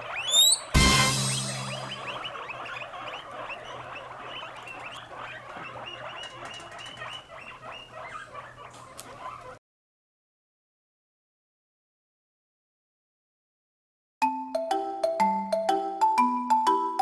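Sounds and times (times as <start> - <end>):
guinea pigs wheeking: 0.0 - 9.6.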